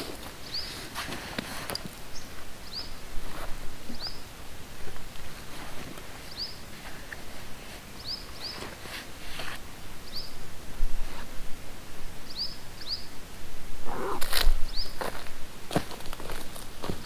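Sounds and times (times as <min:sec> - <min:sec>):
bird chirping: 0:00.4 - 0:00.8, 0:02.1 - 0:03.0, 0:03.9 - 0:04.3, 0:06.2 - 0:06.6, 0:08.0 - 0:08.7, 0:10.0 - 0:10.4, 0:12.3 - 0:13.1, 0:13.9 - 0:15.1.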